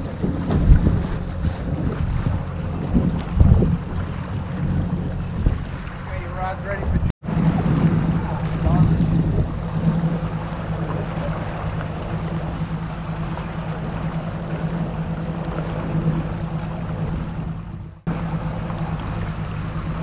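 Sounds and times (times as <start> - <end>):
outboard motor running: 0.0 - 20.0
wind: 0.0 - 20.0
wake water hissing: 7.3 - 20.0.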